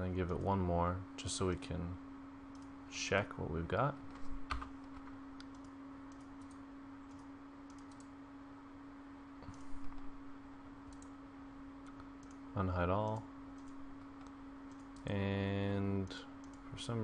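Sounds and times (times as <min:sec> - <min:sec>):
steady low hum: 0:00.0 - 0:17.0
computer mouse and keyboard clicks: 0:04.1 - 0:08.1, 0:09.4 - 0:10.1, 0:10.8 - 0:11.1, 0:11.8 - 0:12.4, 0:13.0 - 0:15.1.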